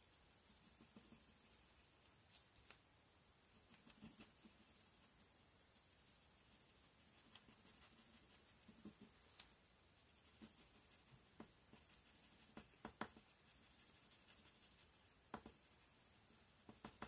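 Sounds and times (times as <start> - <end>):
pencil scratching on paper: 0.3 - 1.9, 3.6 - 5.1, 5.8 - 9.3, 10.0 - 15.8.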